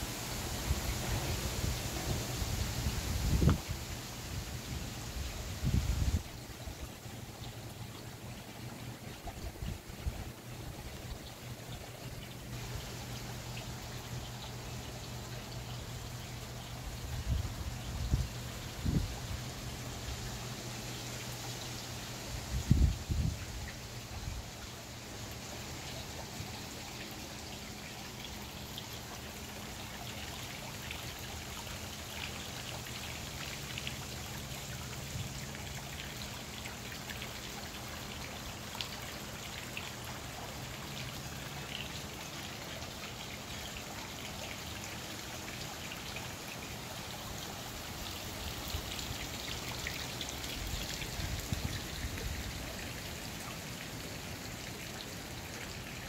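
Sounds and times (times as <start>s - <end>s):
rain on foliage: 12.2s - 56.0s.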